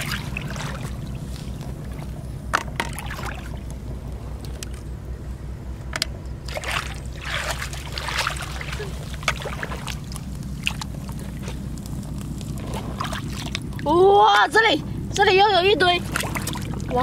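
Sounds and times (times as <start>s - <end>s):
boots sloshing through water: 0.0s - 2.2s, 2.8s - 3.8s, 6.5s - 11.8s, 12.5s - 13.8s, 16.0s - 17.0s
low rumble: 0.0s - 17.0s.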